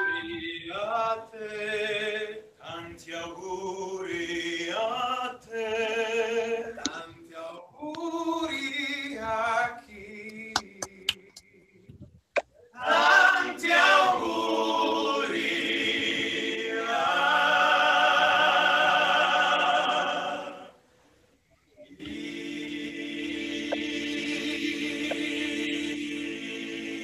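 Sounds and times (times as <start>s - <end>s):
choir singing: 0.0s - 2.4s, 12.8s - 20.8s, 22.0s - 27.0s.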